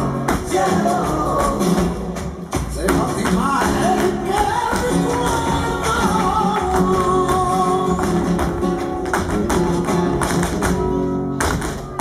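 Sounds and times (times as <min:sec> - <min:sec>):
person singing: 0:00.0 - 0:08.6.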